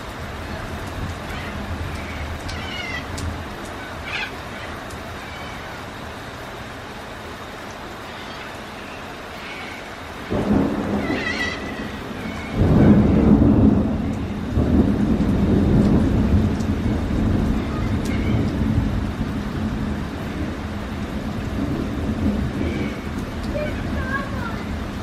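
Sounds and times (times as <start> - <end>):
steady rain: 0.0 - 25.0
thunder rumbling: 10.1 - 25.0.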